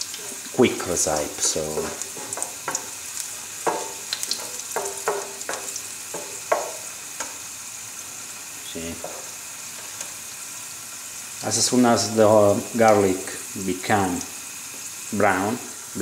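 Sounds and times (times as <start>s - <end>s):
wooden spoon scraping a pan: 0.0s - 7.4s, 9.0s - 10.2s
garlic sizzling in oil: 0.0s - 16.0s.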